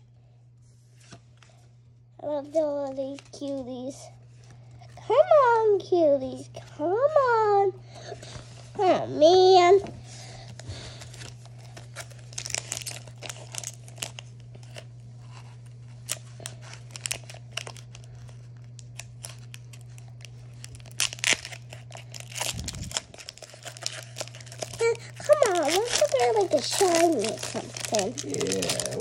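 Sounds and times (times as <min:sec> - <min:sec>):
steady low hum: 0:00.0 - 0:29.0
foil wrapper crinkling and tearing: 0:10.3 - 0:29.0.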